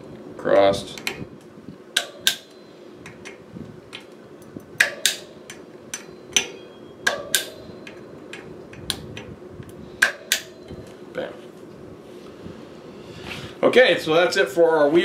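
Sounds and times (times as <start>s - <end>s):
hand driver metallic clicks: 2.0s - 10.6s.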